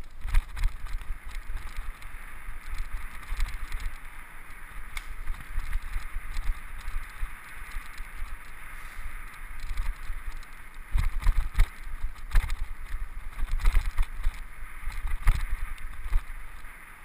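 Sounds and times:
bike knocks and rattles: 0.0 - 4.0
wind buffeting microphone: 0.0 - 16.8
bike tyres on dirt: 0.0 - 17.0.

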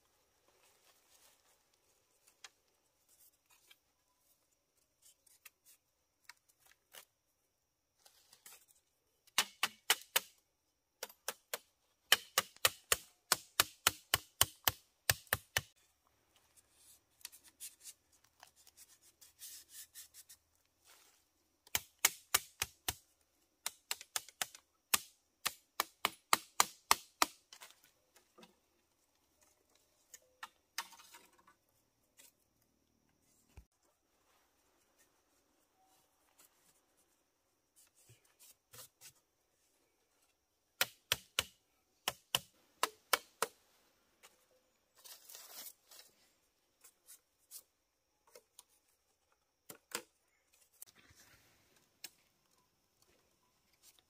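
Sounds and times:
bamboo sticks clicking and clacking: 9.3 - 10.4, 11.0 - 15.8, 21.7 - 23.0, 23.6 - 28.5.

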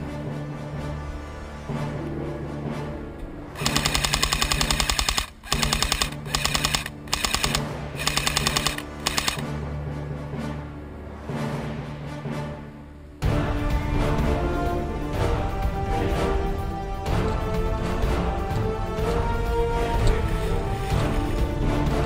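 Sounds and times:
background music with steady beat: 0.0 - 22.0
airsoft rifle firing bursts: 3.6 - 9.4.

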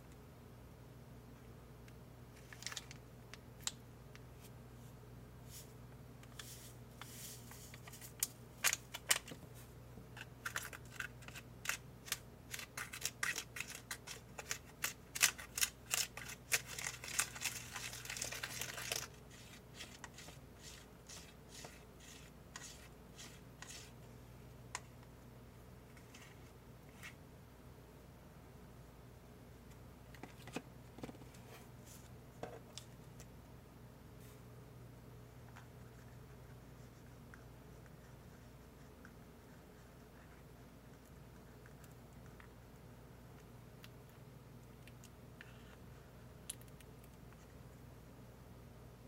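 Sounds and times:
packet crinkling: 10.2 - 19.6.

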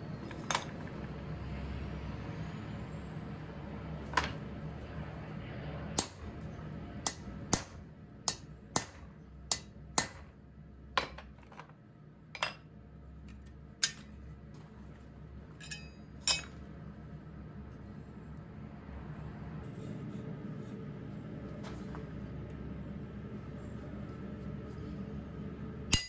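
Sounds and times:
hammer striking metal on anvil: 6.0 - 6.3, 7.0 - 10.3, 15.6 - 16.6.

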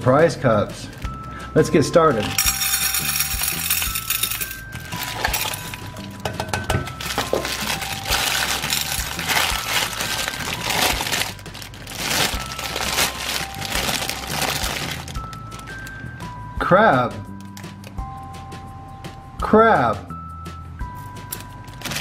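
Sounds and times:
soft background tune: 0.0 - 22.0
pebbles clinking into glass dish: 2.0 - 15.9
cellophane wrapper crinkling: 3.5 - 6.0, 6.9 - 16.0, 21.4 - 22.0.

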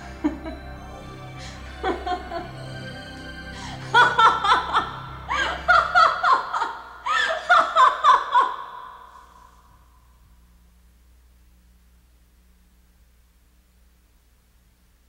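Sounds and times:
woman laughing: 0.0 - 0.8, 1.4 - 2.6, 3.6 - 9.3.

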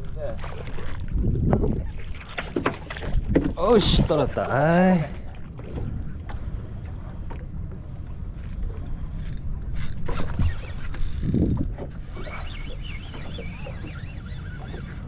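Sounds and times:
wind buffeting microphone: 0.0 - 4.5, 8.7 - 15.0
water slapping against hull: 0.0 - 15.0.

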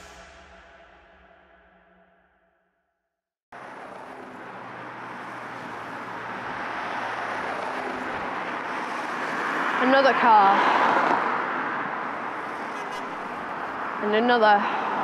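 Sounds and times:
cars driving along street: 3.5 - 15.0.

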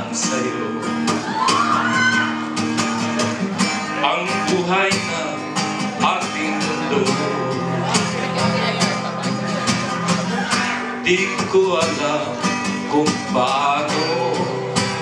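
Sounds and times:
man singing into a microphone: 0.0 - 1.0, 3.8 - 8.8, 10.9 - 15.0
acoustic guitar strumming: 0.0 - 15.0.

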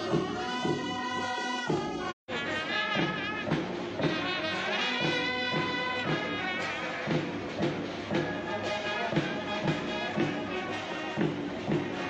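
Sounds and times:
brass band playing a march: 0.0 - 12.0
steady drum beat: 0.0 - 12.0.

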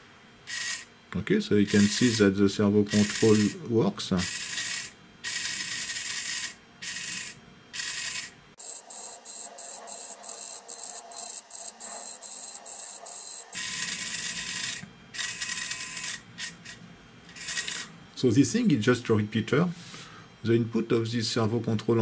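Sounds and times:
servo motor whirring bursts: 0.5 - 0.9, 1.7 - 2.3, 2.9 - 3.6, 4.2 - 17.9.

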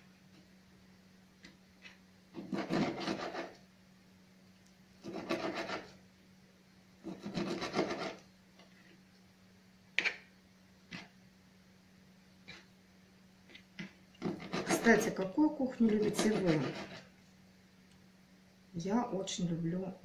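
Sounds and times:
steady low hum: 0.0 - 20.0
knife sawing meat: 2.4 - 3.6, 5.0 - 6.0, 7.0 - 8.2, 14.2 - 15.1, 15.9 - 17.1.

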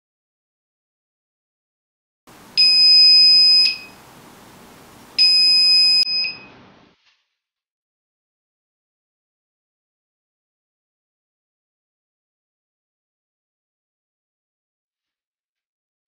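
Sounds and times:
buzzer beeping: 2.6 - 4.0, 5.2 - 6.5.

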